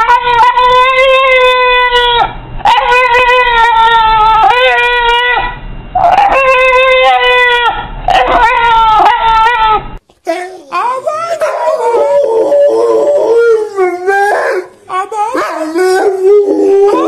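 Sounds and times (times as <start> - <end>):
dog howling and whining: 0.0 - 17.0.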